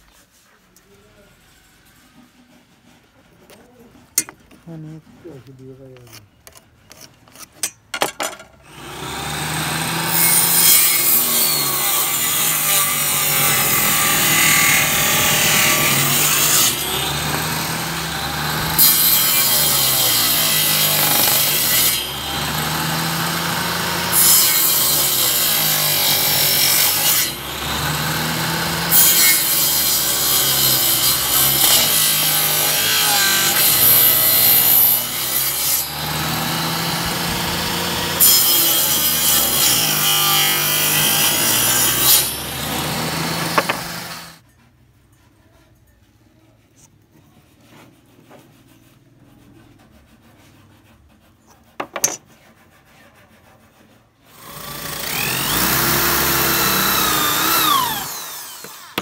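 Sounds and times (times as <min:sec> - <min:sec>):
table saw cutting wood: 0:08.7 - 0:44.4, 0:54.3 - 0:59.0.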